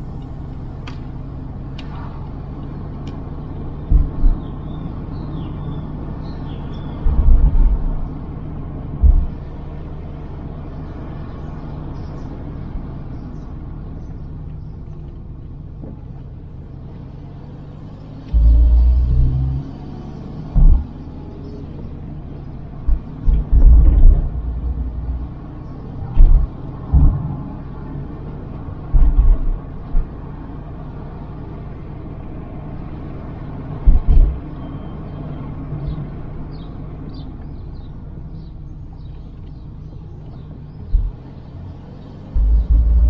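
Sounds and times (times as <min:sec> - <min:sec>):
road rumble: 0:00.0 - 0:43.0
loud low thumps: 0:03.8 - 0:04.6, 0:09.0 - 0:09.4, 0:18.3 - 0:19.6, 0:20.4 - 0:21.3, 0:22.8 - 0:27.6, 0:28.8 - 0:30.2, 0:33.8 - 0:34.4, 0:40.9 - 0:41.3, 0:42.3 - 0:43.0.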